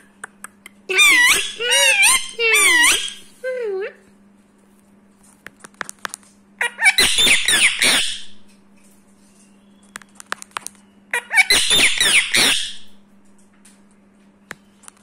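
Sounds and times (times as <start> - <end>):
parrot screeching squawks: 0.9 - 3.3, 6.6 - 8.4, 11.1 - 12.9.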